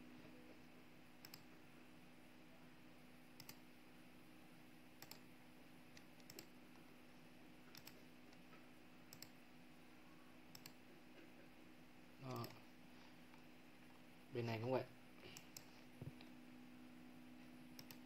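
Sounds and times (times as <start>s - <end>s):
computer mouse clicks: 1.2s - 1.5s, 3.4s - 3.6s, 5.0s - 5.2s, 5.9s - 6.5s, 7.7s - 9.4s, 10.5s - 10.8s, 15.3s - 16.3s, 17.7s - 18.0s.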